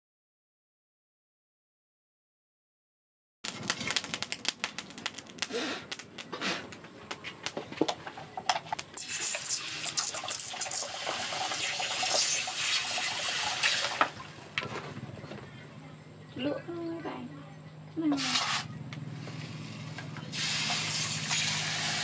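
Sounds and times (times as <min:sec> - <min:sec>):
sharp crackles and clicks: 0:03.4 - 0:12.5
liquid pouring into water: 0:09.0 - 0:14.4.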